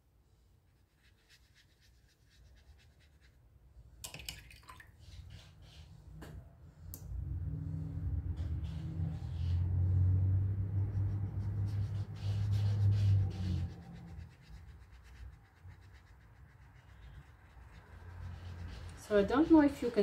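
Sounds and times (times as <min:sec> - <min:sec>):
paintbrush strokes on paper: 0:00.2 - 0:03.5, 0:05.0 - 0:06.2, 0:07.6 - 0:20.0
low rumble with faint hum: 0:05.4 - 0:20.0.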